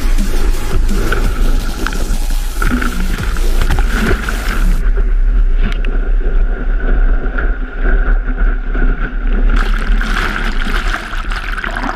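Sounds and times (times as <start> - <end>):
surf rushing: 0.0 - 5.2, 9.1 - 11.9
deep rumble: 0.0 - 11.9.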